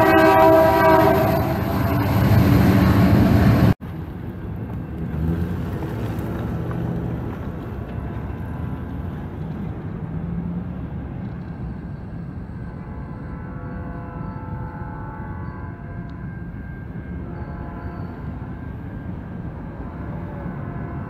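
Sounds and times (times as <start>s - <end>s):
locomotive air horn: 0.0s - 3.8s, 12.7s - 21.0s.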